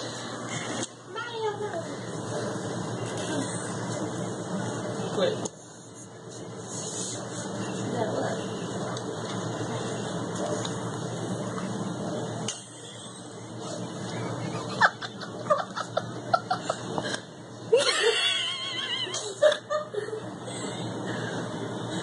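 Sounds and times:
person giggling: 17.8 - 20.9.

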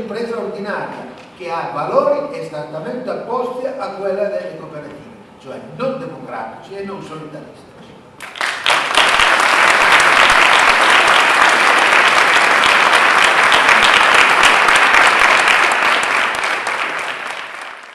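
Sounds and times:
audience applauding: 8.2 - 17.9.

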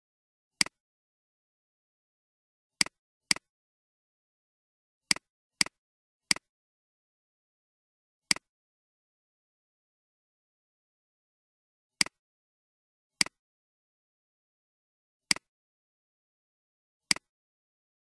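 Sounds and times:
computer mouse clicks: 2.8 - 3.5, 5.1 - 6.5, 12.0 - 12.2, 13.2 - 13.4, 17.1 - 17.3.

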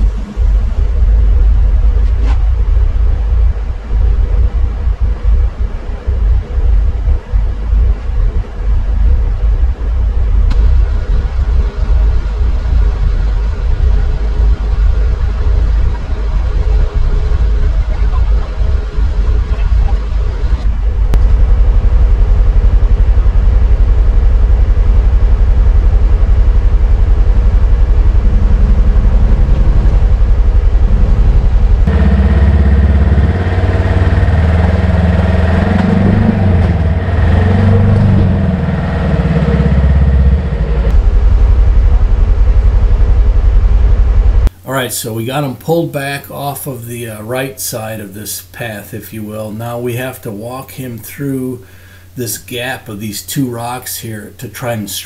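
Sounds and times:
engine idling: 10.5 - 44.5.

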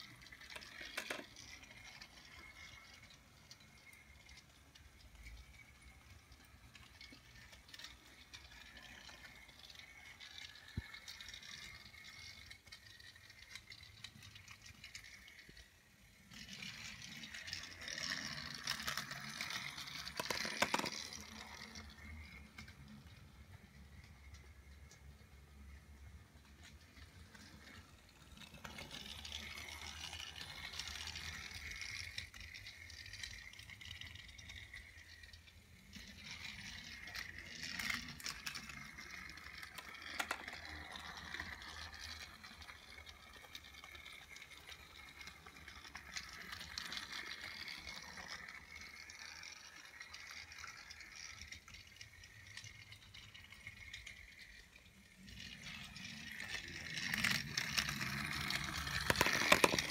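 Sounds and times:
small electric motor whirring: 0.0 - 59.9
toy train wheels rattling: 0.0 - 59.9.

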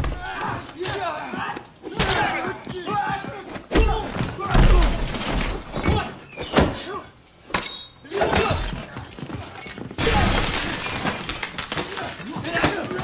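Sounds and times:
glass breaking crash: 10.0 - 12.3.

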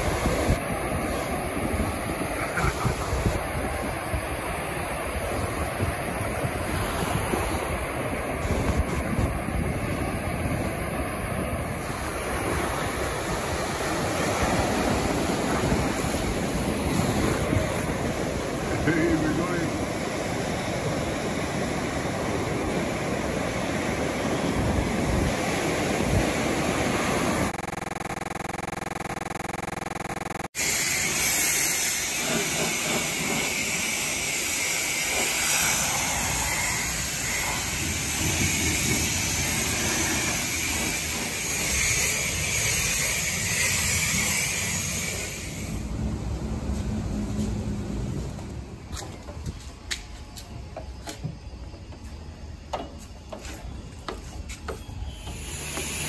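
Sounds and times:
waves breaking on a beach: 0.0 - 28.9.

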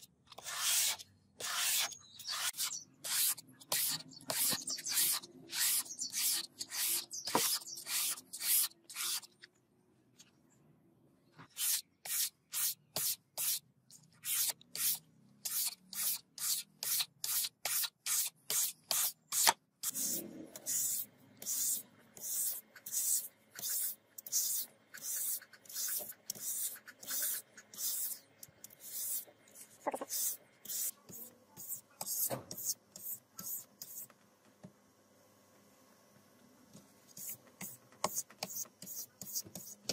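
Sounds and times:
blade scraping on sandpaper: 0.4 - 9.3.

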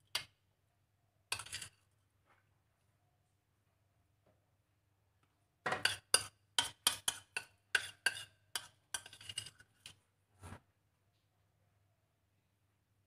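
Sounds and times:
spoon clinking and scraping plastic bowls: 1.3 - 2.0, 5.7 - 10.0.

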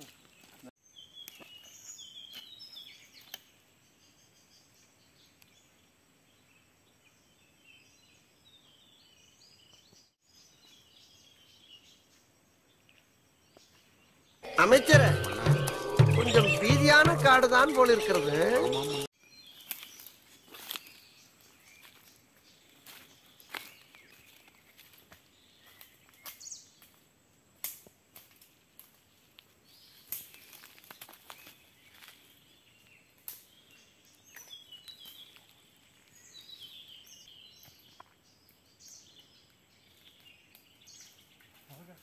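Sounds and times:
footsteps on dry leaves: 18.0 - 26.4, 29.0 - 32.5.

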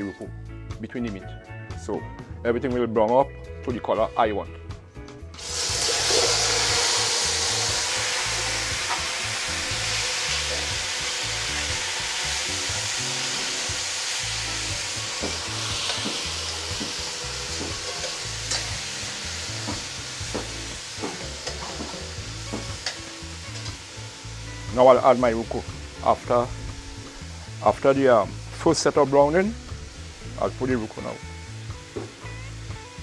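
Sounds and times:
meat sizzling in a pot: 5.4 - 33.0.

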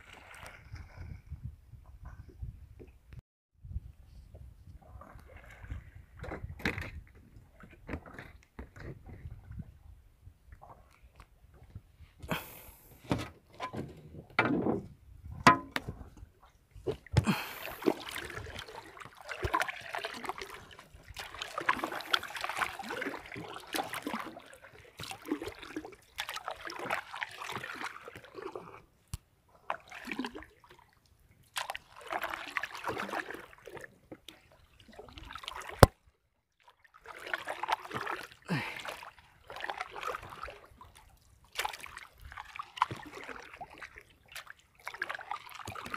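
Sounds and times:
sea water sloshing and splashing: 0.0 - 1.3, 4.8 - 9.7, 15.4 - 45.9.

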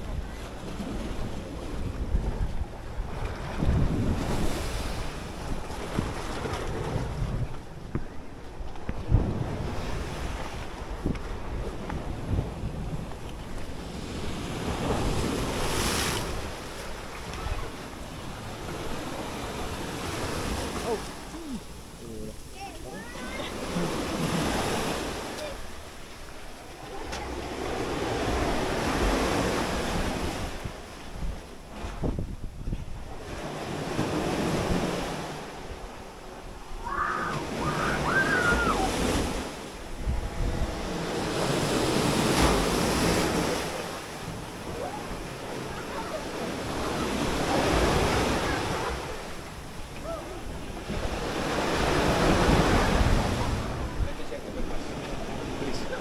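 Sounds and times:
small waves breaking on sand: 0.0 - 32.2, 33.0 - 56.0.

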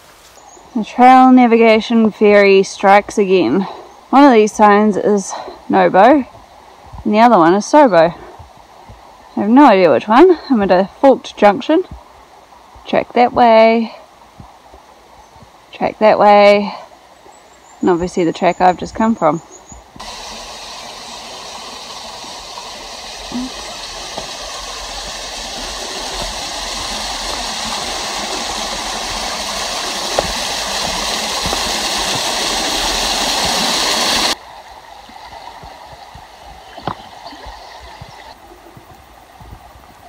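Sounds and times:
stream water rushing: 0.0 - 3.5, 19.9 - 40.0.

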